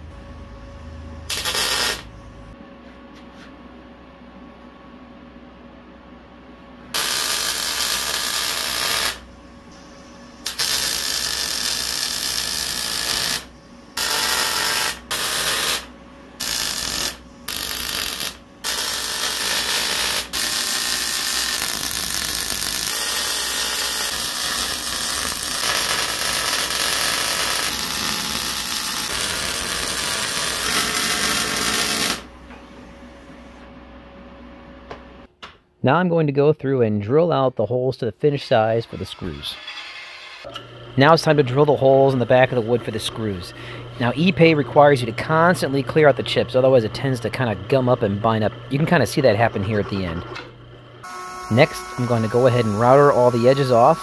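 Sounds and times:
welding arc: 1.3s - 2.1s, 6.9s - 9.2s, 10.4s - 32.3s, 51.0s - 54.0s.

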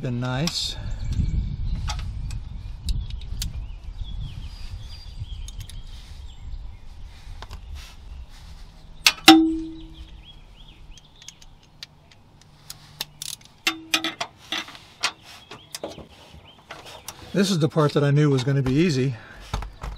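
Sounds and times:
metal tools clinking on metal: 13.2s - 15.2s.

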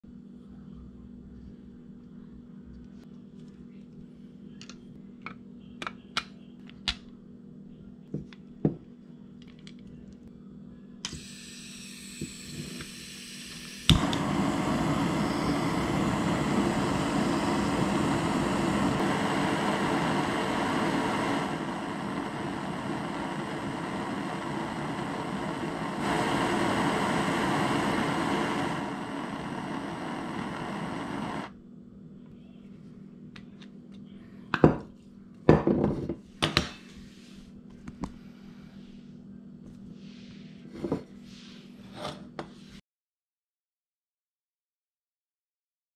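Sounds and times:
gas hissing: 11.0s - 31.6s
torch flame rushing: 12.5s - 31.5s.

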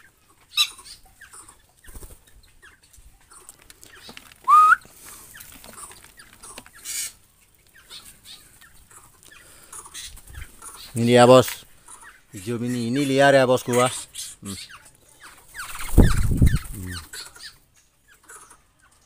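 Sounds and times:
small birds chirping: 0.0s - 19.0s
loud rising whistle: 4.5s - 4.8s.

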